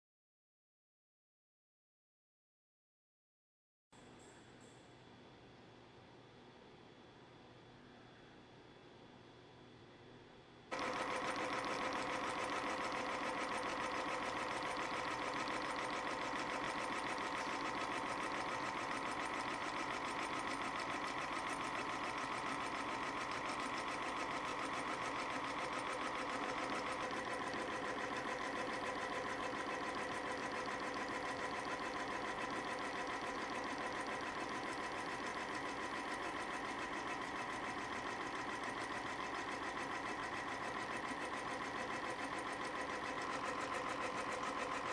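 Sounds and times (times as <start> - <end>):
spring coiling machine chattering: 10.7 - 44.9.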